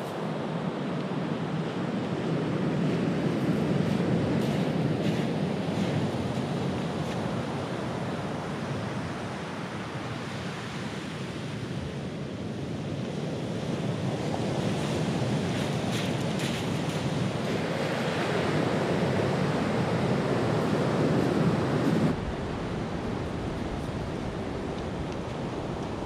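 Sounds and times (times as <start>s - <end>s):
surf washing up pebble beach: 0.0s - 12.1s, 12.8s - 26.0s
wind buffeting microphone: 12.8s - 26.0s.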